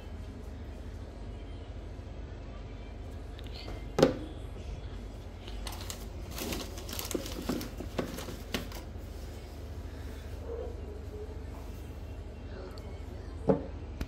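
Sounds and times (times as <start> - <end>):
plastic bag crinkling: 5.4 - 8.9.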